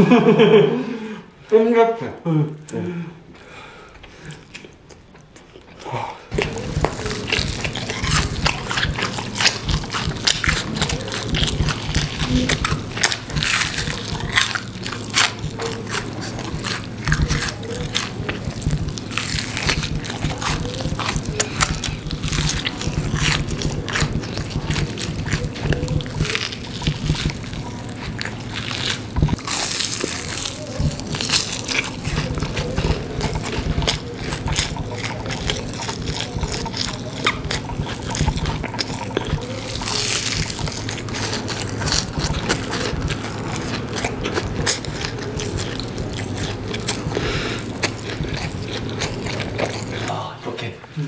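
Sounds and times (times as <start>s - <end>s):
crunching fried food: 3.4s - 50.3s.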